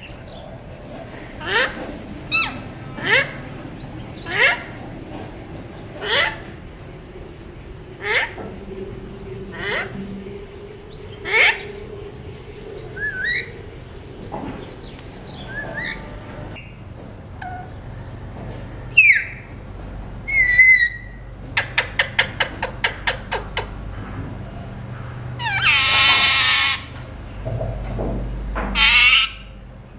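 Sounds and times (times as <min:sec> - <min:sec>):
parakeets squawking and whistling: 0:01.2 - 0:04.8, 0:06.0 - 0:06.5, 0:08.0 - 0:08.5, 0:09.5 - 0:11.9, 0:12.9 - 0:13.7, 0:14.5 - 0:16.7, 0:19.0 - 0:19.4, 0:20.3 - 0:23.7, 0:25.4 - 0:26.9, 0:28.8 - 0:29.5.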